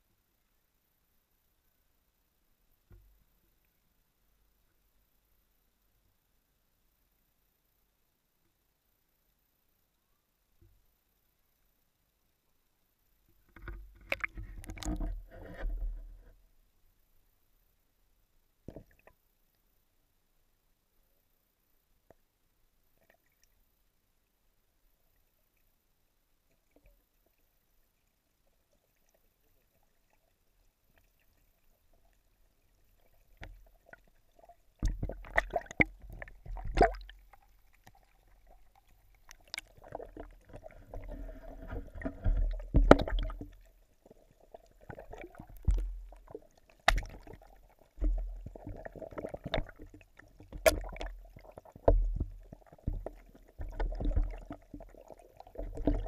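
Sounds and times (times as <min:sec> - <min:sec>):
underwater sloshing and gurgling: 0:13.3 - 0:16.7, 0:24.8 - 0:56.0.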